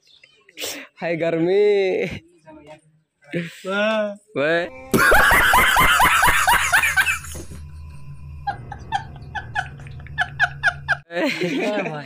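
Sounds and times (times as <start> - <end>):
man laughing hard: 4.9 - 7.6, 8.4 - 12.0.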